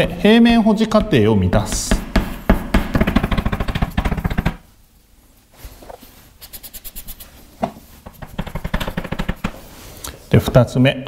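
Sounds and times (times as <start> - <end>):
pen scratching on board: 8.1 - 9.6.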